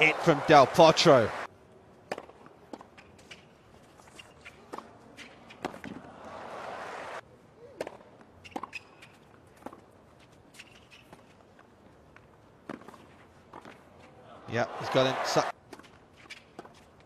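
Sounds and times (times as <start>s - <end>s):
quiet stadium crowd: 0.0s - 17.0s
tennis ball bouncing and struck: 2.0s - 6.0s, 7.8s - 9.9s.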